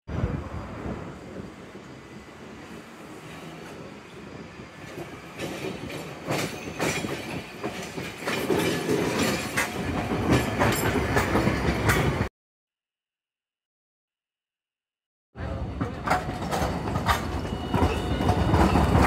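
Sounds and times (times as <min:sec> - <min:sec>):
tram running noise: 0:00.1 - 0:12.3, 0:15.4 - 0:19.0
steel wheels clacking on rails: 0:04.8 - 0:12.3, 0:15.5 - 0:19.0.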